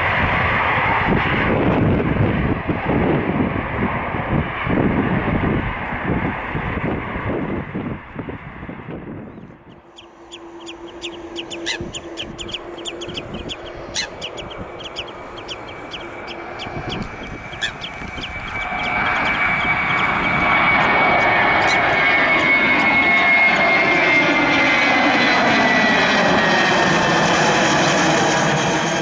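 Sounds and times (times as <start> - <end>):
jet engine high whine: 0.0 - 29.0
jet engine roar: 0.0 - 29.0
faint hum: 9.1 - 23.0.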